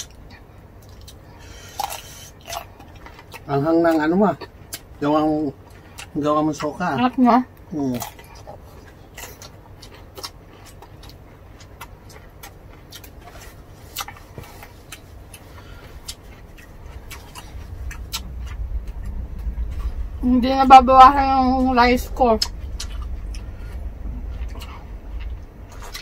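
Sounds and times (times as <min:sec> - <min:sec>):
person chewing: 0:00.0 - 0:06.7, 0:07.7 - 0:20.2, 0:22.0 - 0:26.0
low rumble: 0:14.5 - 0:26.0.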